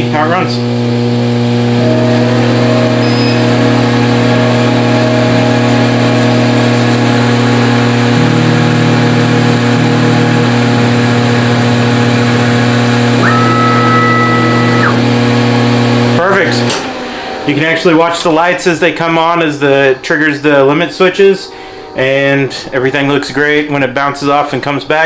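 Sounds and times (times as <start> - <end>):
laser engraver electric hum: 0.6 - 16.1
lower tone: 1.6 - 15.8.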